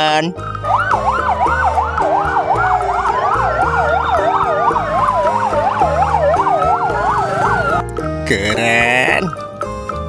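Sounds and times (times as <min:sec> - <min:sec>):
musical backing: 0:00.2 - 0:10.0
siren slow wail: 0:00.3 - 0:07.9
siren fast yelp: 0:00.6 - 0:07.8.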